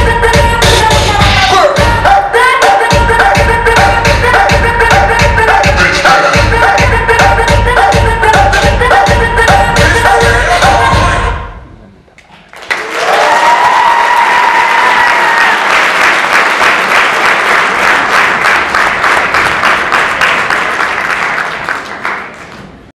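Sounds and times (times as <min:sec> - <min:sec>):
audience applauding: 0:12.3 - 0:22.9.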